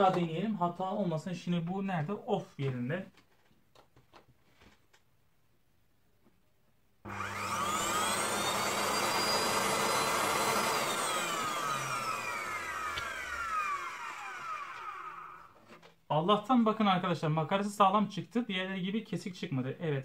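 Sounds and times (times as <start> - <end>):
vacuum cleaner motor whine: 7.1 - 15.6.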